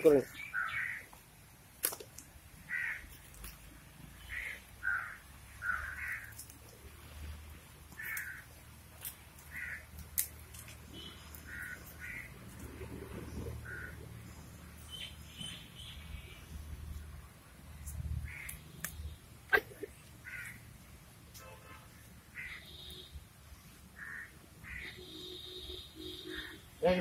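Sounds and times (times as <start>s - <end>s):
fire crackling: 0.0s - 24.8s
bird cawing: 0.4s - 1.1s, 2.7s - 3.1s, 4.2s - 6.5s, 7.9s - 8.6s, 9.5s - 10.0s, 10.9s - 12.4s, 13.3s - 14.1s, 18.2s - 18.6s, 20.2s - 20.6s, 22.3s - 23.0s, 24.0s - 26.6s.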